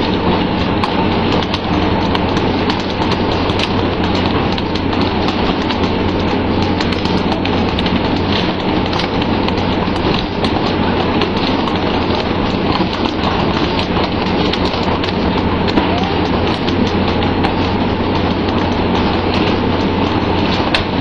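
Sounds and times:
low engine hum: 0.0s - 21.0s.

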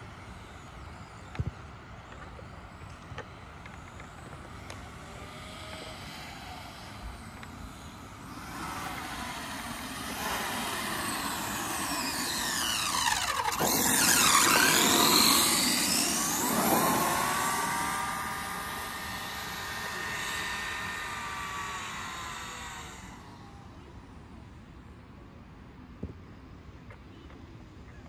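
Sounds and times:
electric motor whining: 2.1s - 24.0s.

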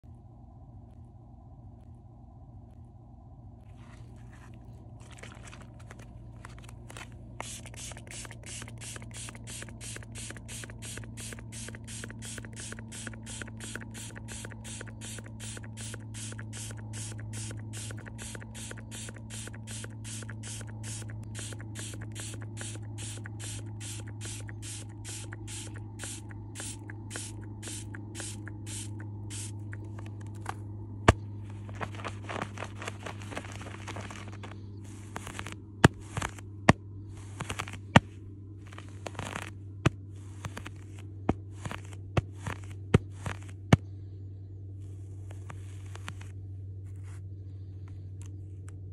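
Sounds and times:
steady low hum: 0.0s - 48.9s
short rubbing sound: 5.2s - 30.6s
quick short spray bursts: 7.4s - 30.2s.

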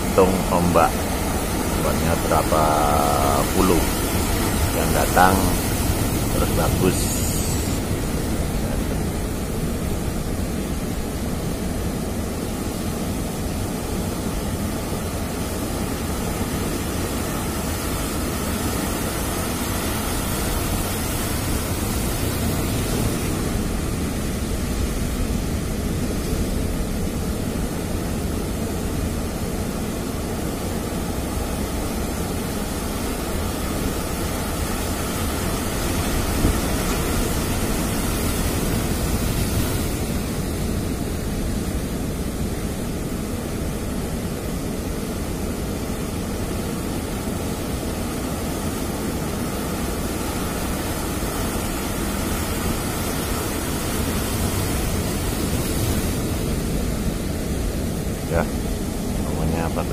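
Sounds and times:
ocean surf crashing on rocks: 0.0s - 59.9s.

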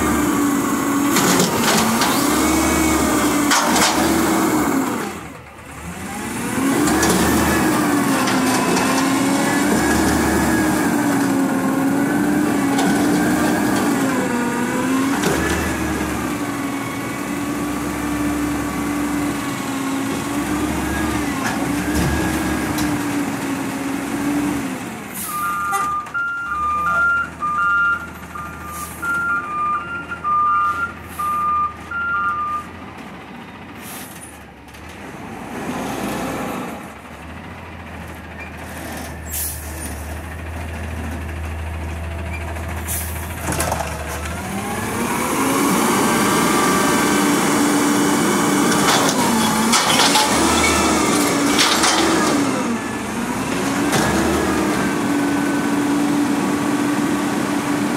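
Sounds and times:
truck engine and hydraulic whine: 0.0s - 57.9s
two-tone backup alarm beeping: 25.3s - 32.7s.

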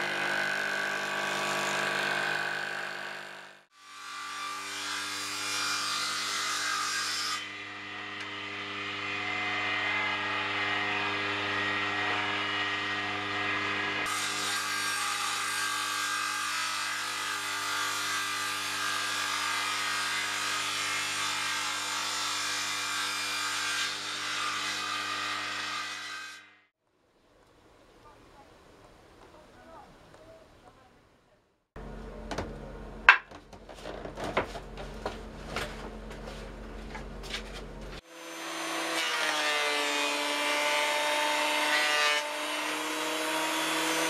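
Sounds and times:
table saw motor hum: 0.0s - 3.7s.

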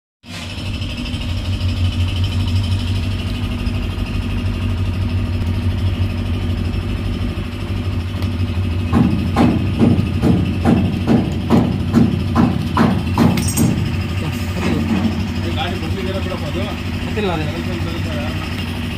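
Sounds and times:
low mechanical hum: 0.3s - 18.9s.

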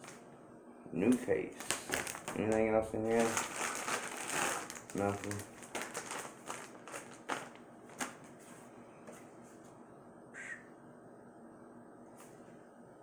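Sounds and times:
plastic packaging clicks and rustles: 1.1s - 8.4s.

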